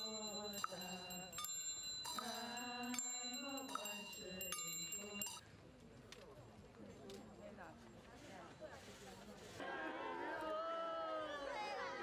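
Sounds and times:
small ritual bell ringing: 0.0 - 5.4.

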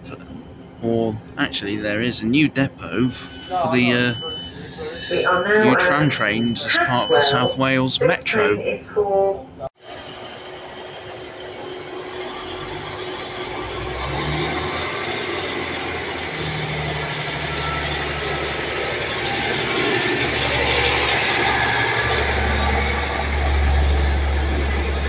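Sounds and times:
train diesel engines running: 0.0 - 8.9, 9.8 - 25.0
wheel and rail noise: 9.8 - 25.0.

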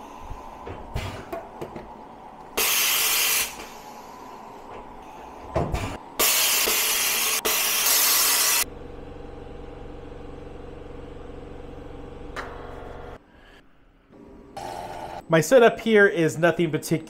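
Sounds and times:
compressed air hiss: 2.6 - 4.4, 6.2 - 8.6.

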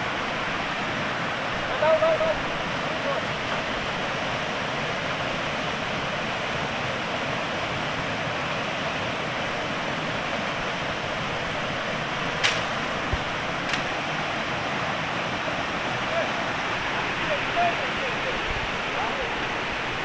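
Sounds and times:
water rushing over rocks: 0.0 - 20.0
sharp clicks: 12.4 - 12.7.

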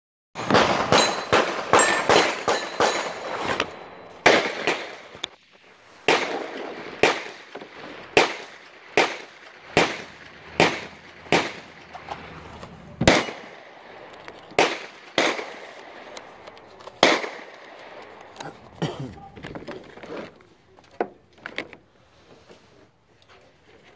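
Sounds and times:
gunshots with echo: 0.4 - 5.3, 6.0 - 16.4, 17.0 - 18.4.

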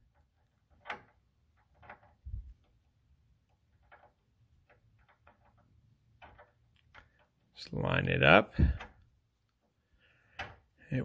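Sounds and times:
faint metallic clicks and taps: 0.0 - 7.6.

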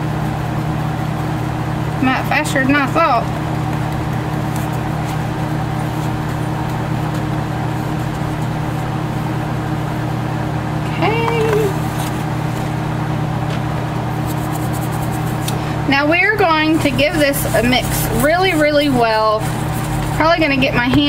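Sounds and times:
low machine hum: 0.0 - 21.0.

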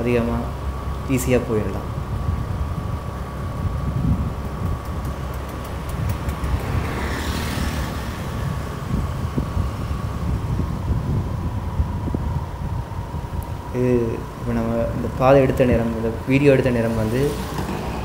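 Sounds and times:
vehicle engine and road noise: 0.0 - 18.0
faint whine: 8.0 - 18.0.

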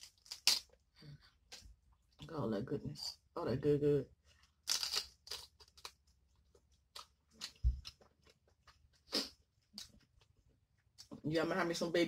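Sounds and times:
crab shell crunching: 0.0 - 0.9, 4.6 - 8.9.

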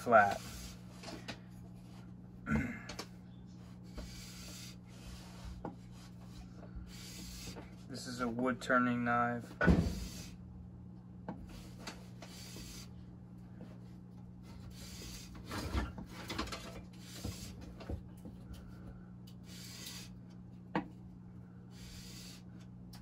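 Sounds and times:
blade rasping on sandpaper: 19.5 - 20.2, 21.8 - 22.4.

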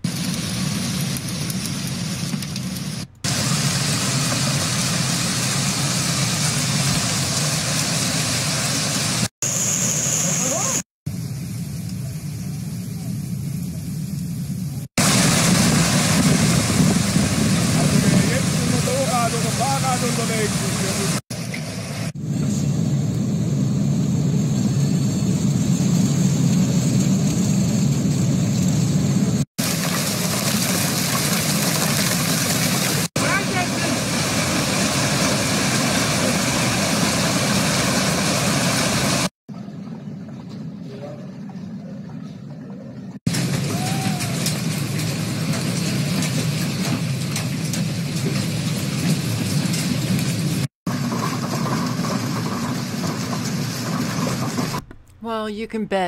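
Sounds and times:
hail falling on street: 0.0 - 9.3, 15.0 - 21.2, 29.6 - 39.3, 43.3 - 54.9
wind: 0.0 - 55.2
hail pounding on car roof: 50.9 - 55.0.

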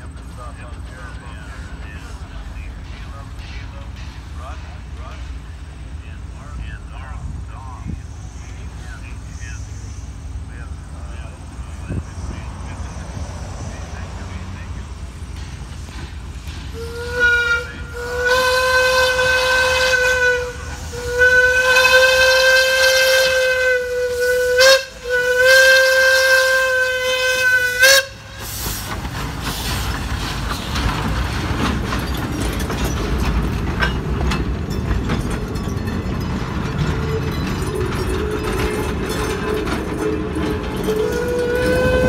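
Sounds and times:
train rumbling past on rails: 0.0 - 42.0
steam whistle blasts: 16.7 - 28.6, 40.9 - 42.0.

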